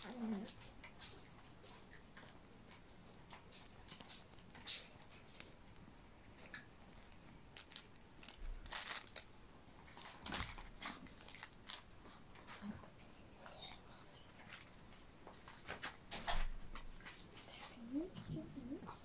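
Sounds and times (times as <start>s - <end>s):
plastic wrapper crinkling and crunching: 6.4s - 12.4s.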